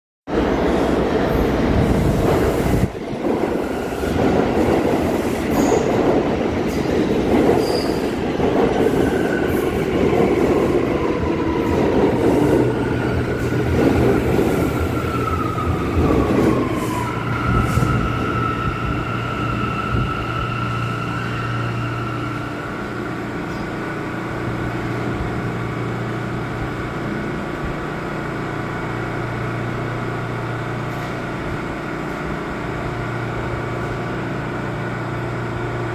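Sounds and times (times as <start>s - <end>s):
train wheels rumbling on rails: 0.3s - 35.9s.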